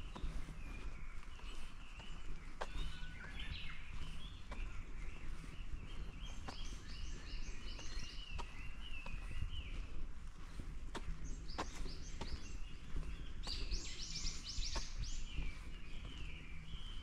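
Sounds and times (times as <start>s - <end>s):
birds singing and chirping: 0.0s - 17.0s.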